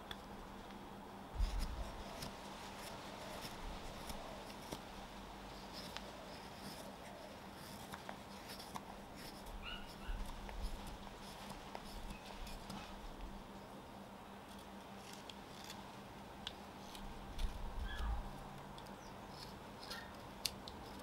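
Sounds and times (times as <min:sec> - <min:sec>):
knife scraping wood: 0:01.4 - 0:04.9, 0:05.5 - 0:13.0, 0:14.5 - 0:15.9.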